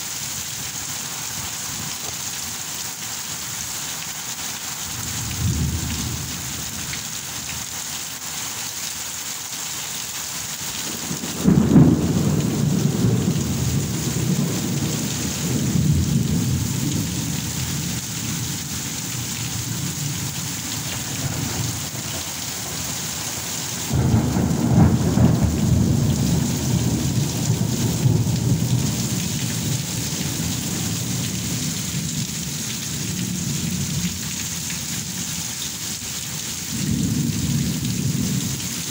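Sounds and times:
heavy rain on tiled roof: 0.0 - 38.9
thunder rolling: 10.9 - 18.4, 19.6 - 31.7.

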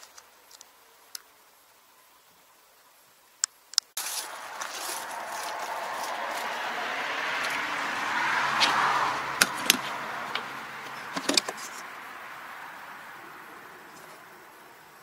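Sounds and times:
rustling handling noise: 4.0 - 6.6, 9.4 - 12.0.

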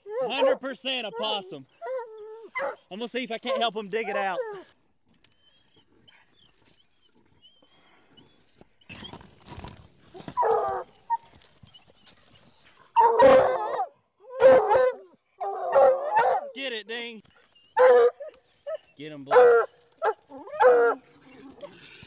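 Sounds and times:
dogs barking: 0.1 - 4.4, 13.0 - 16.6, 17.8 - 21.0.

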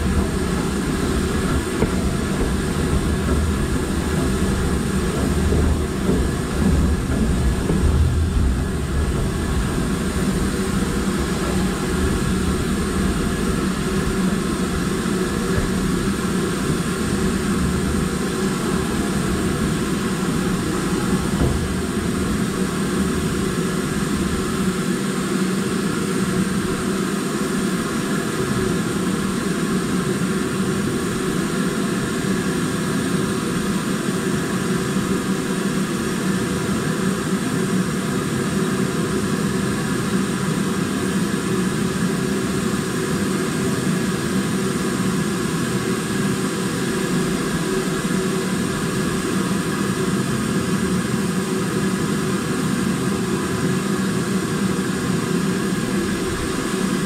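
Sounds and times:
steam locomotive roar and rumble: 0.0 - 57.0.

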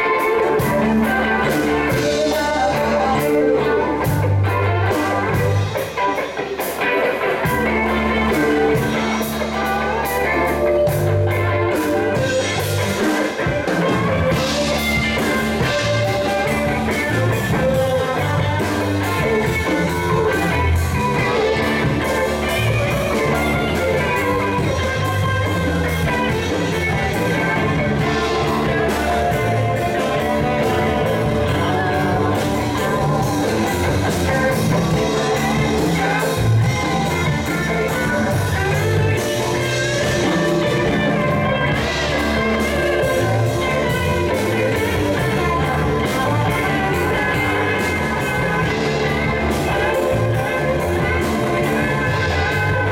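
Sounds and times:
bass guitar: 0.0 - 52.9
electric guitars: 0.0 - 52.9
keyboard: 0.0 - 52.9.

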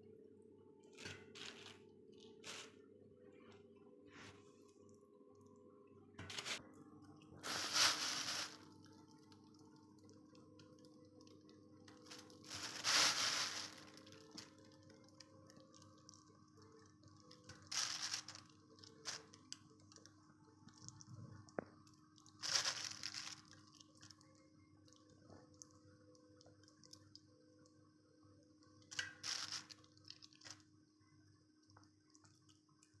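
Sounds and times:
plastic bag crinkling: 7.4 - 8.9, 12.0 - 16.2, 17.3 - 20.0, 22.3 - 24.2, 28.9 - 30.6.

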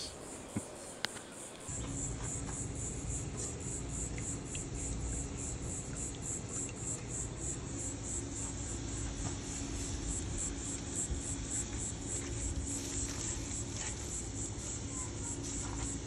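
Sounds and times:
insects chirping in pulses: 0.0 - 16.0
low steady hum: 0.0 - 16.0.

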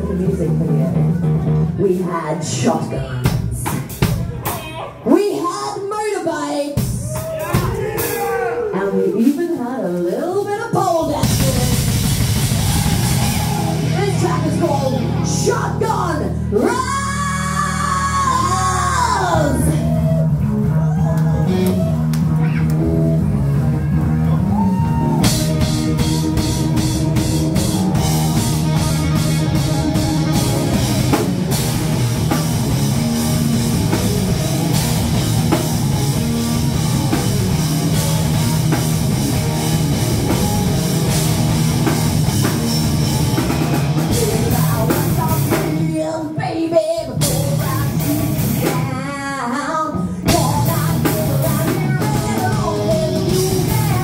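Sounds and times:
drum kit: 0.0 - 6.0, 6.6 - 46.4, 47.0 - 49.1, 49.9 - 54.0
bass guitar: 0.0 - 54.0
electric guitar: 11.2 - 54.0
person singing: 44.0 - 54.0.

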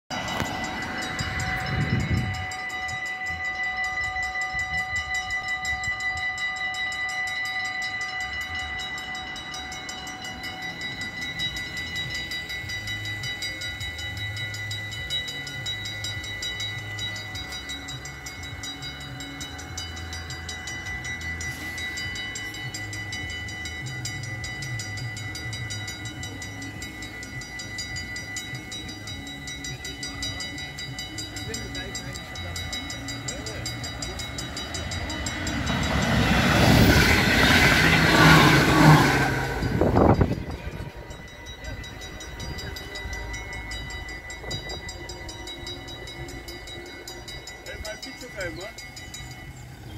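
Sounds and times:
level crossing bells ringing: 0.1 - 49.9
car passing: 34.1 - 41.9.

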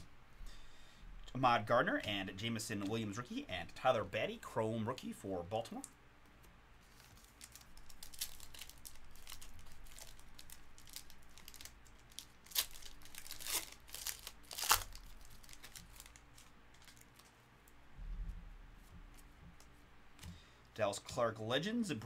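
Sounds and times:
wrapper crinkling and tearing: 6.9 - 17.4.

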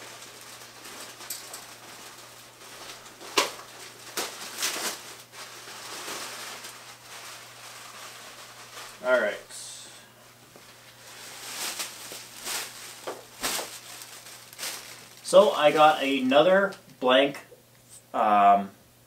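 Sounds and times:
plastic packaging crinkling: 0.0 - 9.4, 10.3 - 16.8.

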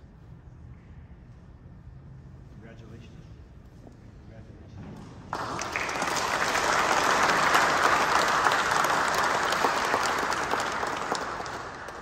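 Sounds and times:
crowd applauding: 5.3 - 12.0.

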